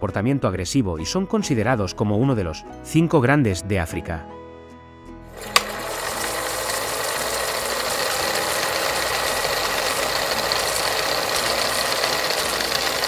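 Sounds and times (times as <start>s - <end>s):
rapid mechanical rattle: 5.4s - 13.0s.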